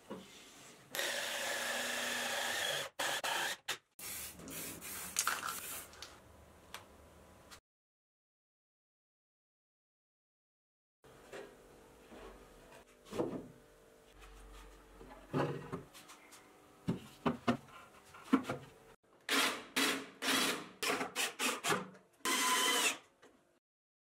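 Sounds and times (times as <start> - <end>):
drill driving a screw: 0.9 - 3.8, 19.3 - 23.1
cordless drill boring: 1.0 - 3.6, 22.3 - 23.0.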